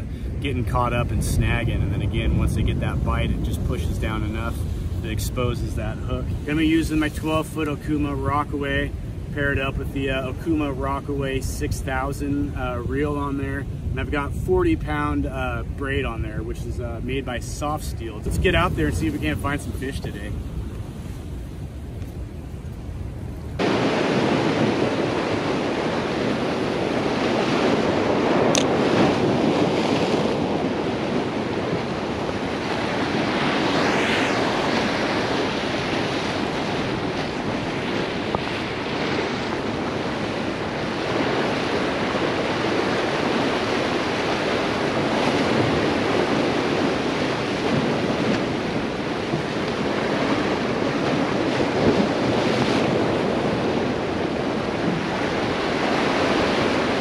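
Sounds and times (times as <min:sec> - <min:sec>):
surf breaking over rocks: 0:00.0 - 0:22.4, 0:23.4 - 0:57.0.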